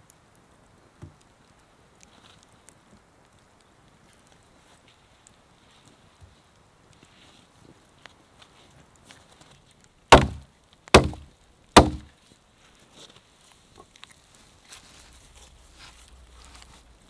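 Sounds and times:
axe chopping into wood: 0:10.1 - 0:12.1.

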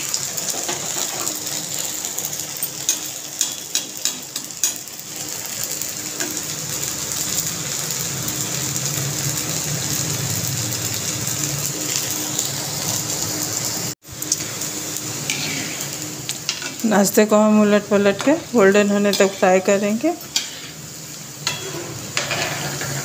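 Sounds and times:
patties deep-frying in oil: 0:00.0 - 0:23.0.

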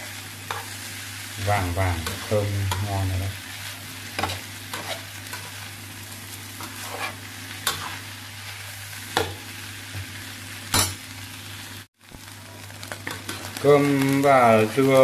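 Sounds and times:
rice sizzling in a frying pan: 0:00.0 - 0:15.0
metal spatula scraping pan: 0:04.2 - 0:05.6, 0:06.6 - 0:08.0.

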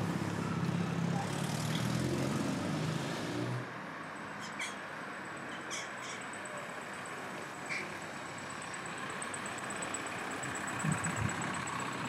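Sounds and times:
engine rumbling: 0:06.0 - 0:12.0.

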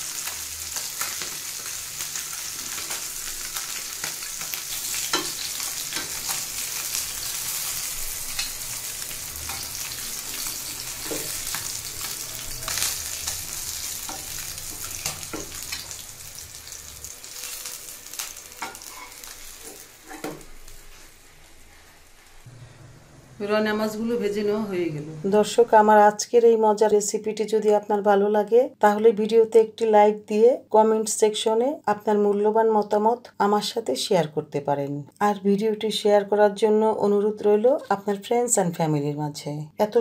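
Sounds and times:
fish sizzling in hot oil: 0:00.0 - 0:22.5.

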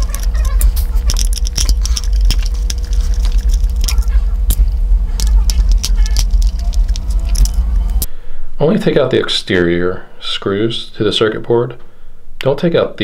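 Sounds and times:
screwdriver clicking and scraping: 0:00.0 - 0:04.6
steady low hum: 0:00.0 - 0:13.0.

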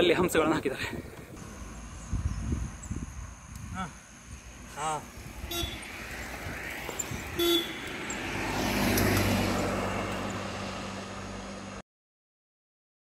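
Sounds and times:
highway traffic: 0:00.0 - 0:11.8
vehicle passing: 0:04.5 - 0:11.8
vehicle horn toot: 0:05.4 - 0:06.0, 0:07.3 - 0:08.0.

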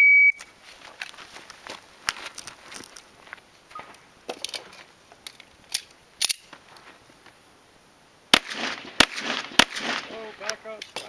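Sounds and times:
handgun shots: 0:08.4 - 0:10.2.

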